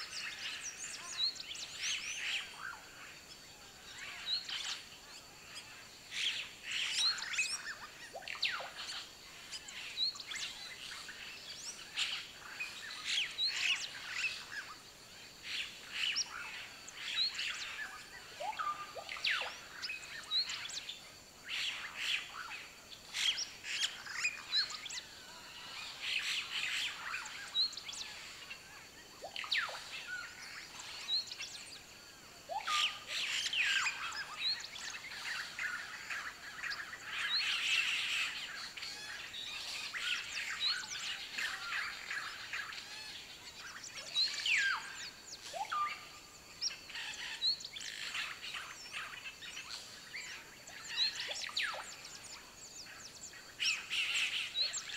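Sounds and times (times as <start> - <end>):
birds chirping and whistling: 32.5 - 54.9.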